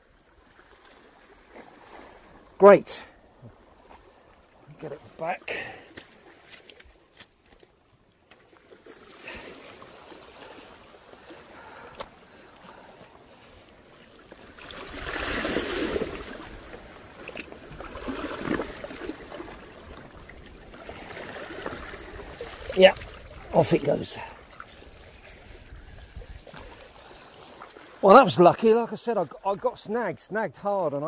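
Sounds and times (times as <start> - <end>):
sea water sloshing over rocks: 0.0 - 2.6, 3.2 - 29.6.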